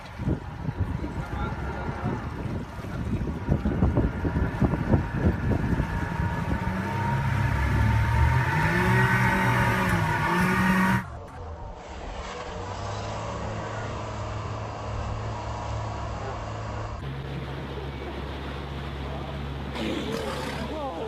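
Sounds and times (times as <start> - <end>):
wind buffeting microphone: 0.0 - 8.9
motorboat engine accelerating: 0.0 - 21.0.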